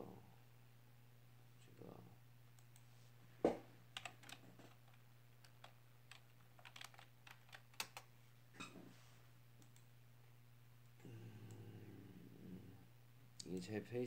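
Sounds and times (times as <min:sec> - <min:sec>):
faint low hum: 0:00.0 - 0:14.0
keyboard keys tapping: 0:04.0 - 0:08.1.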